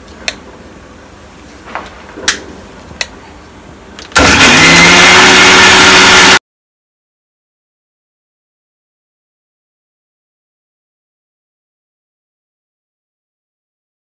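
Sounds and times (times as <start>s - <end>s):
mixer grinder motor whirring: 4.1s - 6.4s.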